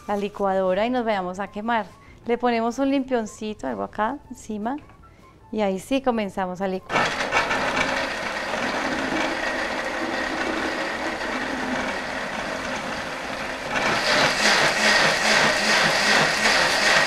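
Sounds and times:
blender pureeing soup: 6.9s - 17.0s.

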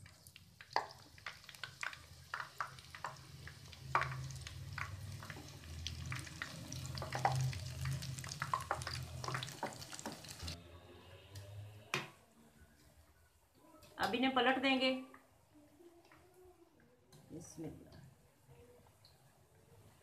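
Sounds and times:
batter sizzling in hot oil: 0.0s - 10.6s
oil crackling and popping: 0.0s - 10.6s.

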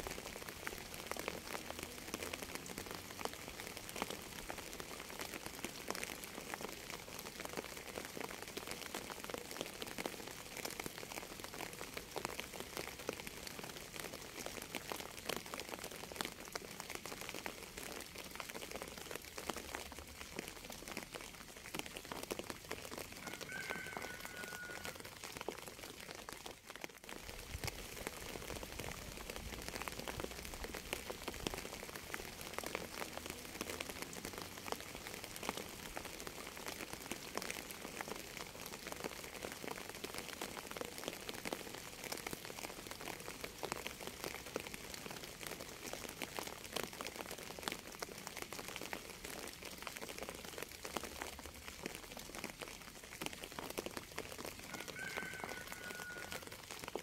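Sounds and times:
steady rainfall: 0.0s - 57.0s.

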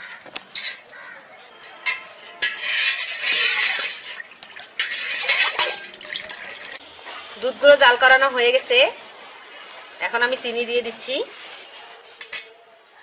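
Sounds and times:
spoon clinking against metal pot: 1.8s - 6.7s
stirring and sloshing milk: 2.6s - 6.8s.

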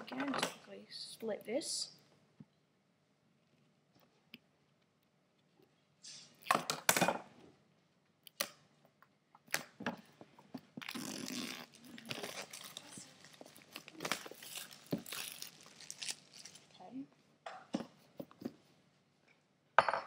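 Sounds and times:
plastic wrap ripping: 10.8s - 16.8s
plastic wrap crinkling: 10.8s - 16.9s.

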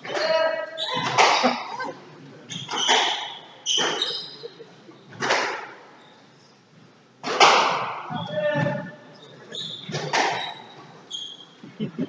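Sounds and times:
squash ball hitting walls: 0.0s - 1.6s, 7.2s - 8.7s, 9.9s - 10.6s
sneakers squeaking on wooden floor: 0.0s - 1.8s, 2.4s - 5.3s, 5.9s - 6.4s, 8.0s - 11.6s.

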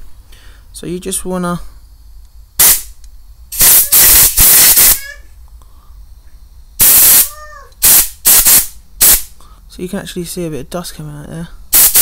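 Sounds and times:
air blow gun blasts: 2.6s - 5.2s, 6.8s - 9.3s, 11.7s - 12.0s.

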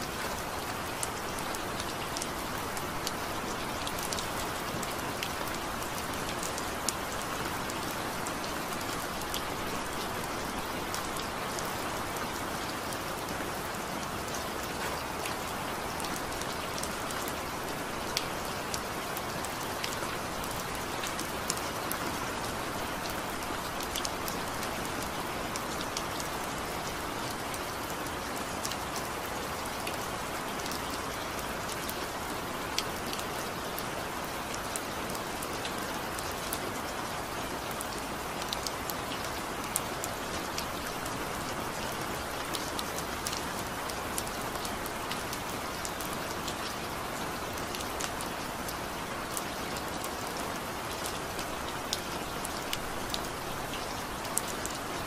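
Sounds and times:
steady rain hiss: 0.0s - 55.0s.

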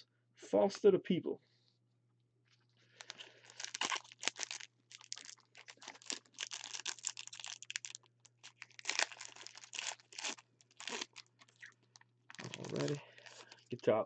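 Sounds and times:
foil pack crinkling and tearing: 2.9s - 13.7s.

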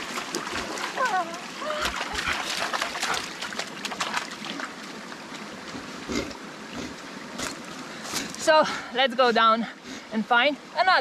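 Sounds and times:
dog splashing in stream: 0.0s - 5.5s
stream trickling: 0.0s - 11.0s.

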